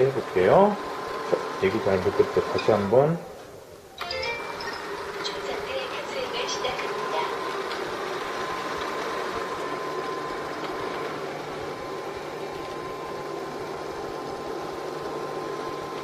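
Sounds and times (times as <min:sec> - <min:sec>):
thin high whine: 0:01.6 - 0:15.9
robot vacuum whirring: 0:04.6 - 0:16.0.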